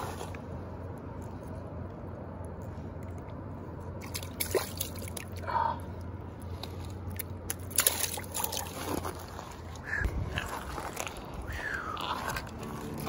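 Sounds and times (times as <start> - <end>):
fish splashing into water: 4.0 - 5.4, 7.5 - 8.8.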